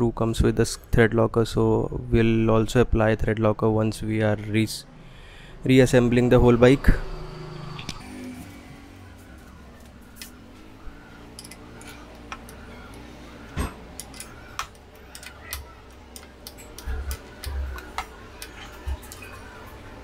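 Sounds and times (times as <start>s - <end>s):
hand tool and screws clicking: 11.3s - 13.0s, 14.0s - 18.1s.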